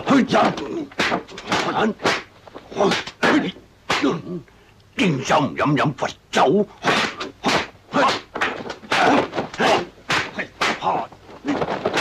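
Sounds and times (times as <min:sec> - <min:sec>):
punch hits and swishes: 0:00.4 - 0:04.2, 0:06.8 - 0:12.0.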